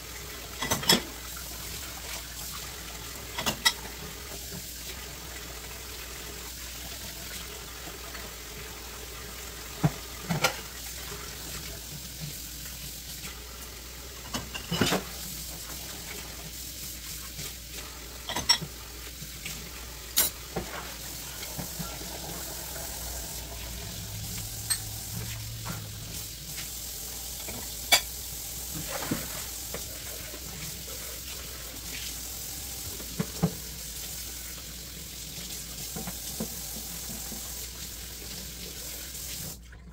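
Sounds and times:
dishes clinking against sink: 0.5s - 1.2s, 3.2s - 4.0s, 14.2s - 15.2s, 18.2s - 18.8s, 20.1s - 26.1s, 27.4s - 28.2s
tap running into sink: 19.4s - 30.4s, 32.8s - 34.0s.

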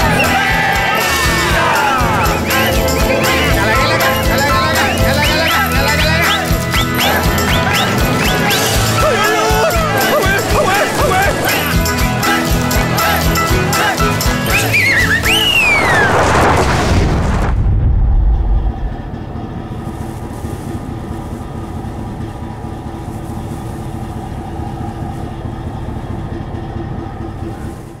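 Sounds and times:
steady drone: 0.0s - 28.0s
truck engines revving: 0.0s - 28.0s
tyres and gravel rushing: 0.0s - 28.0s
low rumble: 14.5s - 28.0s.

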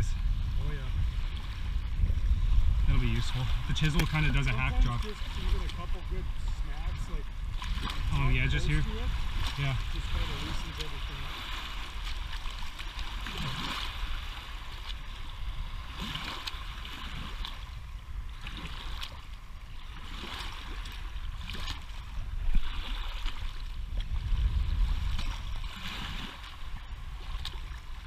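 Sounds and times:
steady low rumble: 0.0s - 20.1s
waves washing over gravel: 2.9s - 14.8s.

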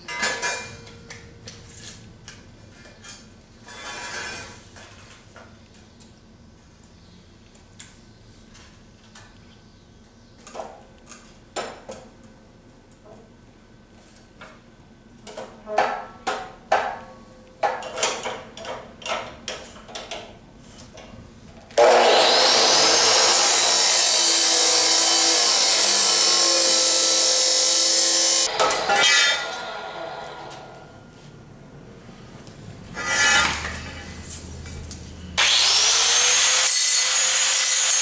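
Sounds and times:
chop saw cutting steel: 21.8s - 30.7s, 33.0s - 34.2s, 35.4s - 38.0s.

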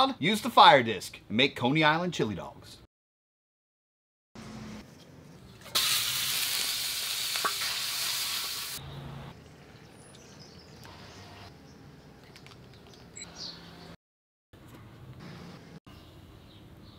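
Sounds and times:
meat sizzling in a pan: 5.8s - 8.8s.

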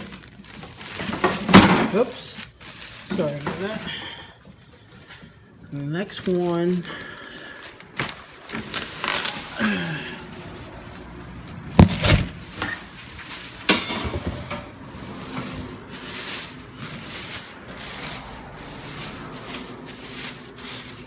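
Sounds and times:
plastic wrapping crinkling: 0.0s - 13.8s, 14.7s - 21.0s.

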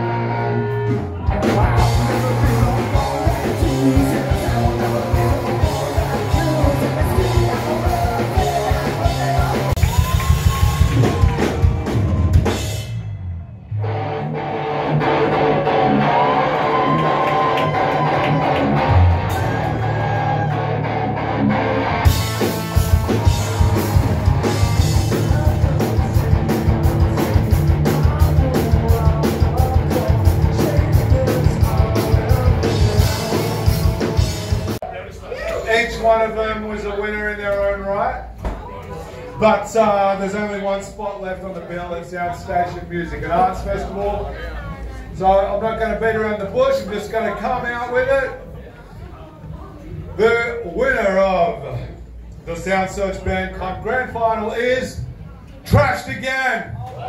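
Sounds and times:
electric guitars: 0.0s - 34.8s
drum kit: 0.0s - 34.9s.

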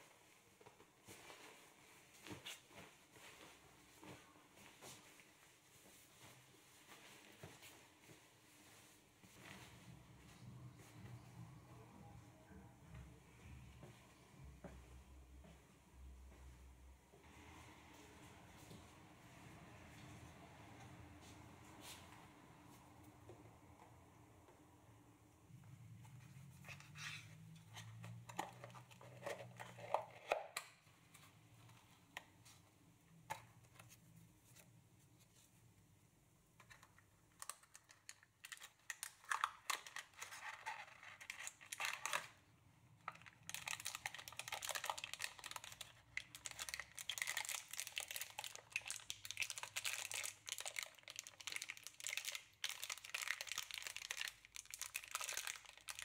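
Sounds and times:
plastic bag crinkling: 43.0s - 56.0s.

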